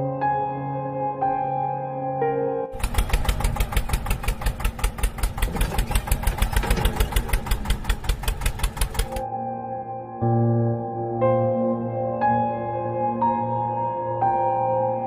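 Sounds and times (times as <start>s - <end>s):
engine chugging at idle: 2.7s - 9.2s.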